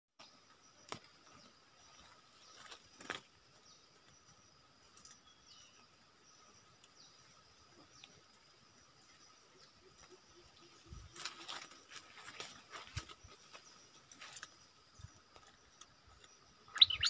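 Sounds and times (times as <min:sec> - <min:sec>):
insects droning: 0:00.2 - 0:17.0
bird chirps: 0:05.0 - 0:08.2, 0:12.3 - 0:17.0.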